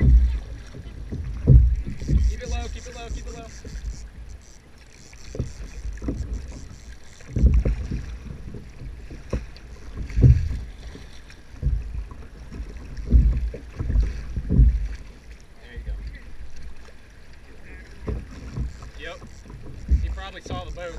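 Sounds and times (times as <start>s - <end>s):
wind buffeting microphone: 0.0s - 4.4s, 18.0s - 20.9s.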